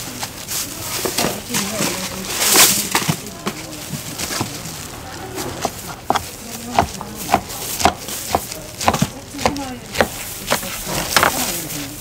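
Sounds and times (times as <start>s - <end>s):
voices chattering: 0.0s - 12.0s
knife chopping on cutting board: 5.6s - 11.4s.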